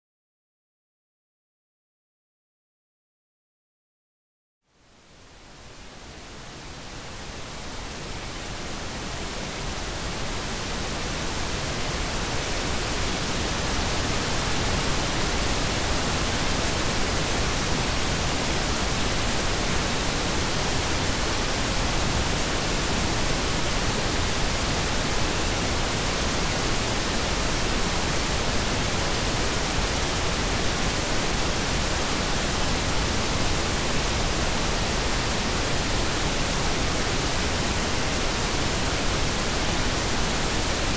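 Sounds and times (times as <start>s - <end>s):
pink noise hiss: 4.7s - 40.9s.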